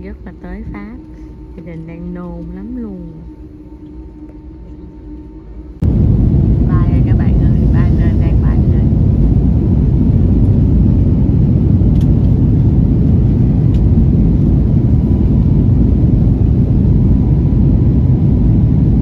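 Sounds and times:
faint thin whine: 0.0 - 6.0
jet engine cabin rumble: 0.0 - 19.0.

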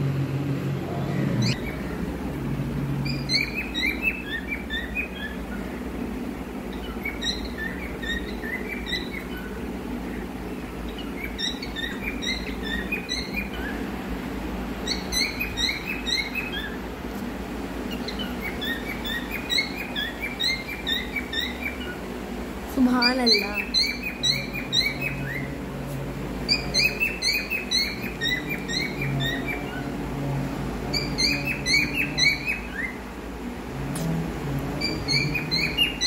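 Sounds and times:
steady low hum: 0.0 - 36.0
cockatiels chirping: 1.2 - 2.0, 3.0 - 5.8, 6.7 - 10.2, 10.8 - 13.9, 14.8 - 16.8, 17.9 - 22.0, 23.0 - 25.6, 26.5 - 29.8, 30.9 - 33.0, 34.8 - 36.0.

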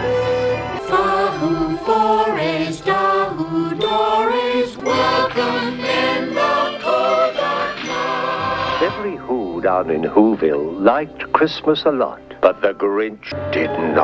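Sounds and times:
choir singing held notes: 0.0 - 10.0
orchestral music: 0.0 - 14.0.

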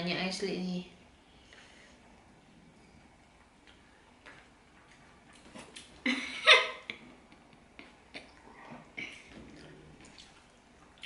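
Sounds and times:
child giggling: 6.0 - 7.0
mouth noises of eating: 6.9 - 11.0.

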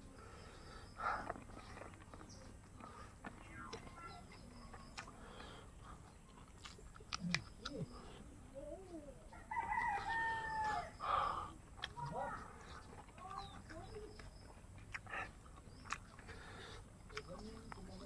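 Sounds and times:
mouth clicks of eating: 1.1 - 8.2, 11.7 - 18.0
rooster crowing: 9.3 - 11.0.

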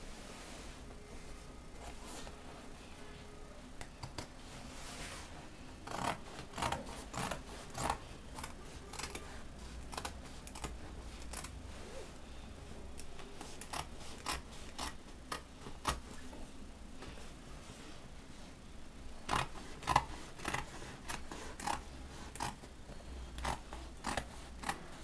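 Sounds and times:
scissors snipping fabric: 5.9 - 9.2, 13.0 - 16.0, 19.3 - 22.6, 23.4 - 24.8.

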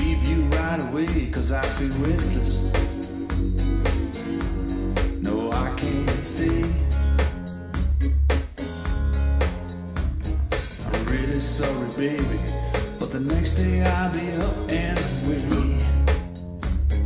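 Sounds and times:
drum hits: 0.0 - 8.6
deep bass notes: 0.0 - 17.0
song over speakers: 0.0 - 17.0
wavering melody line: 2.0 - 7.2.

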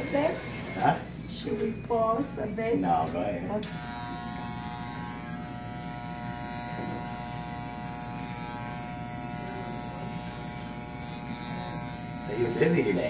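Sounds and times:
electric hair clippers buzzing: 3.5 - 13.0.

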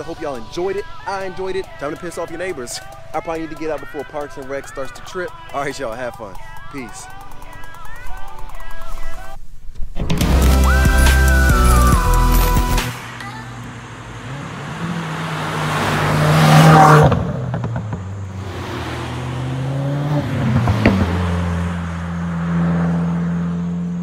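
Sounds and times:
car engine accelerating: 11.6 - 24.0.

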